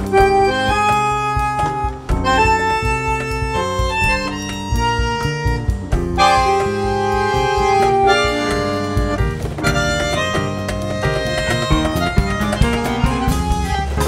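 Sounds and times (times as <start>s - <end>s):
reedy melody over steady beat: 0.0s - 14.0s.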